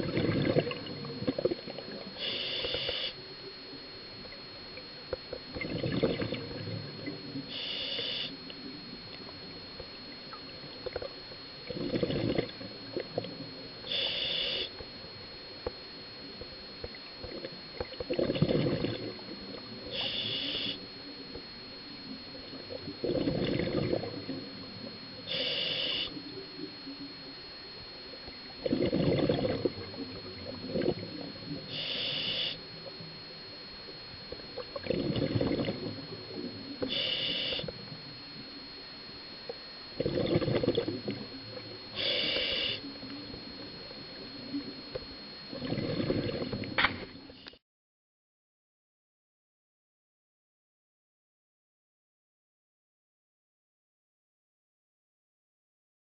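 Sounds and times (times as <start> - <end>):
exhale bubbles burbling underwater: 0.0 - 2.9, 5.5 - 8.2, 10.8 - 14.6, 17.2 - 20.7, 22.5 - 26.0, 28.4 - 32.5, 34.4 - 37.6, 39.9 - 42.8, 43.4 - 46.8
regulator inhale hiss: 2.0 - 3.2, 7.4 - 8.4, 13.8 - 14.8, 19.8 - 20.9, 25.2 - 26.4, 31.5 - 32.7, 34.9 - 37.8, 41.9 - 43.2, 47.2 - 47.6.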